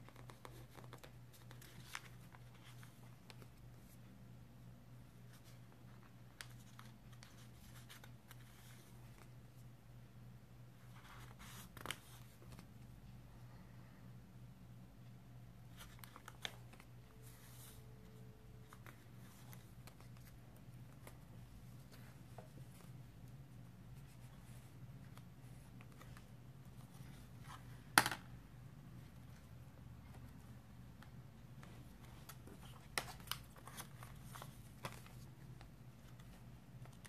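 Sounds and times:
paper pages turning: 0.0 - 3.9, 5.2 - 9.3, 10.8 - 12.7, 15.7 - 17.8, 18.6 - 23.0, 30.0 - 37.0
low steady hum: 0.0 - 37.0.

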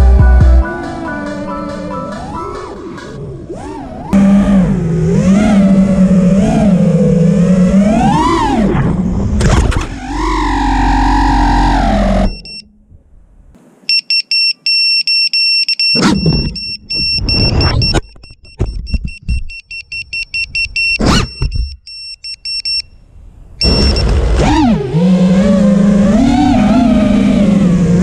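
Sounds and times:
drone motors whining: 0.0 - 12.7, 15.9 - 18.0, 23.6 - 28.0
buzzer beeping rapidly: 13.9 - 22.8.

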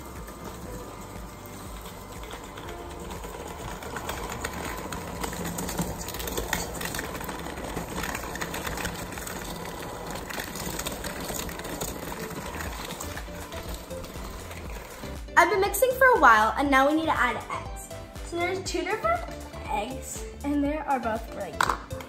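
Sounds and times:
electric mixer running: 0.0 - 15.4.

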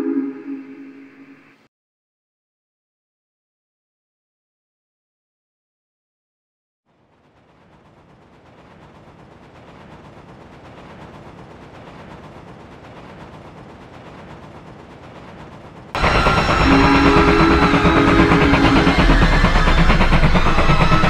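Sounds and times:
held whistle tones: 0.0 - 1.4, 16.0 - 21.0
steam locomotive chuffing: 6.9 - 21.0.

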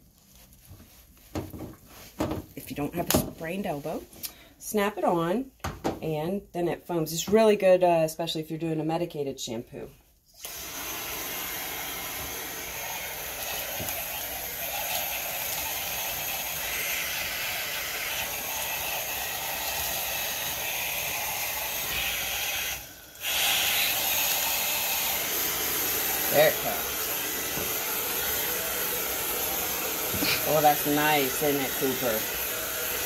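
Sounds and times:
pressurised spray hissing: 21.8 - 33.0.

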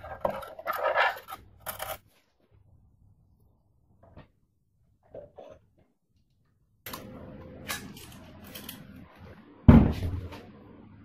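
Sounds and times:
loud heavy knock: 9.7 - 10.2.

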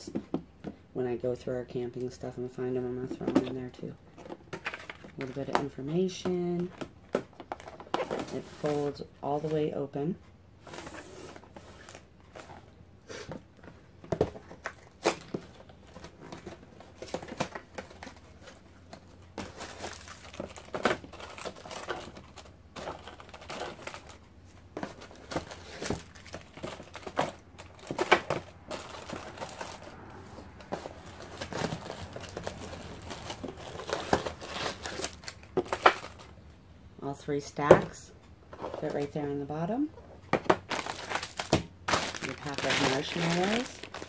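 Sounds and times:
plastic wrappers crinkling: 4.1 - 9.7, 14.1 - 36.4, 40.3 - 44.0
cardboard and plastic knocks: 40.3 - 42.2.

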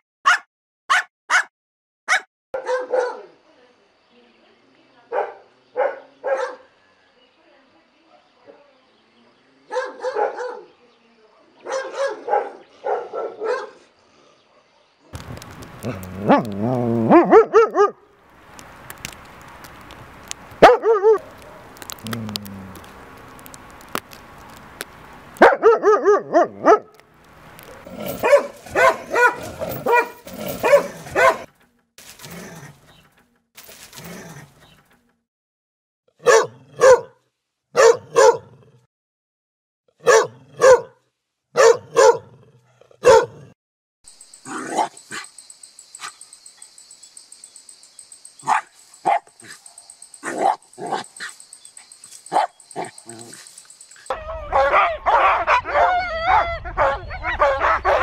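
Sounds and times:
dogs barking: 0.3 - 1.5, 2.1 - 3.3, 5.1 - 6.7, 9.7 - 10.7, 11.6 - 13.9, 15.8 - 18.0, 20.6 - 22.4, 25.4 - 26.9, 27.6 - 31.5, 36.2 - 37.2, 37.8 - 38.6, 40.0 - 41.0, 41.6 - 42.4, 43.0 - 43.6, 44.5 - 45.3, 48.4 - 58.0.

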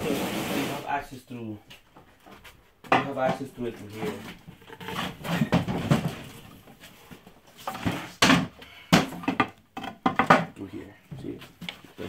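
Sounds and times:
wooden closet doors clattering: 4.1 - 6.6, 7.7 - 10.6.

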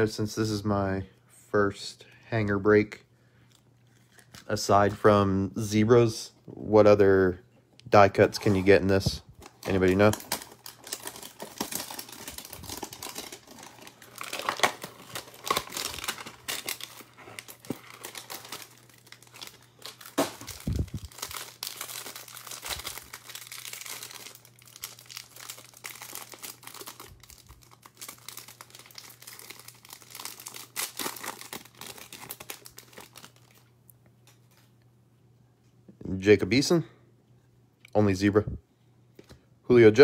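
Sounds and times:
plastic wrapper crinkling: 3.8 - 4.6, 8.3 - 34.7.

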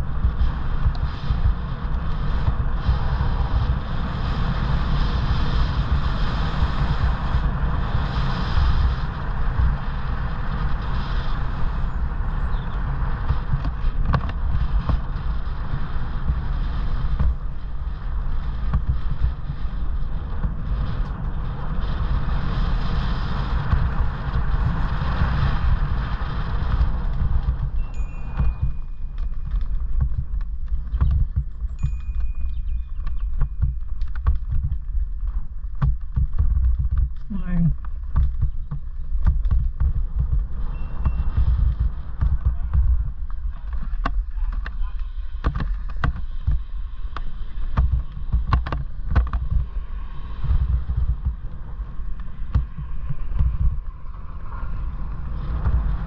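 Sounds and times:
wind buffeting microphone: 0.0 - 56.0
stones ticking: 26.3 - 54.0.

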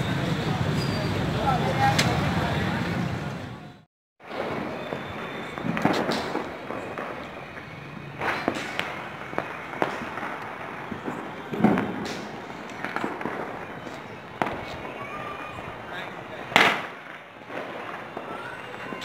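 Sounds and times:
sharp bangs: 4.2 - 7.6, 16.5 - 18.4
firecrackers crackling: 4.2 - 19.0.

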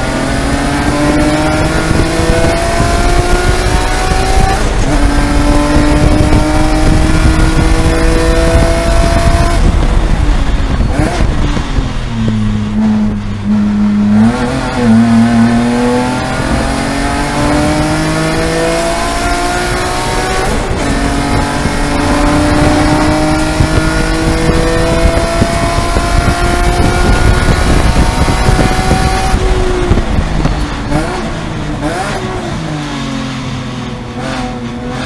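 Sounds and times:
race car engine accelerating: 0.0 - 35.0.

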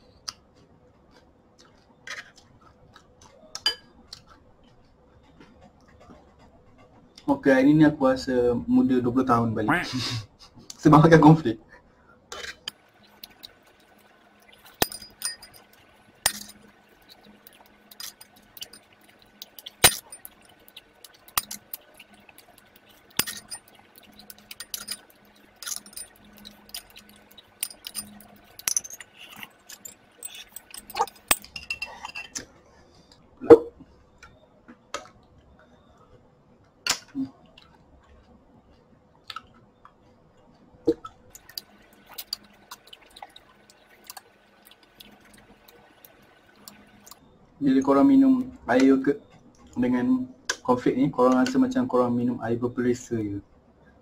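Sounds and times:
spoon clinking on ceramic bowl: 12.7 - 32.4.

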